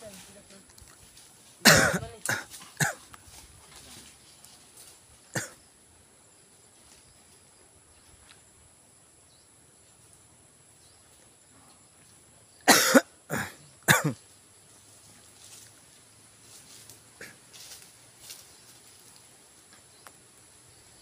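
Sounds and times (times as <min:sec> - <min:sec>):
person coughing: 0:01.6 - 0:03.0, 0:05.3 - 0:05.6, 0:12.7 - 0:14.2.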